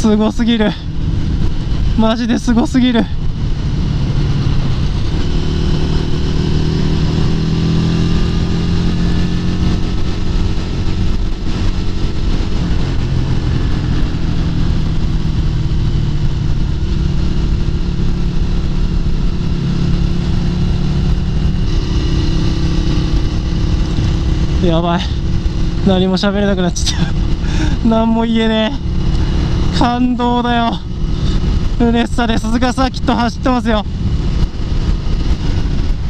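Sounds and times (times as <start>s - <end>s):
motorcycle engine running steadily: 0.0s - 36.0s
wind noise: 0.0s - 36.0s.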